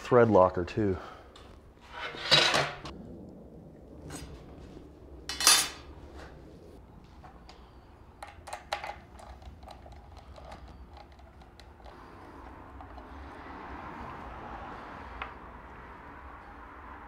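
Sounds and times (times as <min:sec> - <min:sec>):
loud metal scrape: 0:01.8 - 0:02.9.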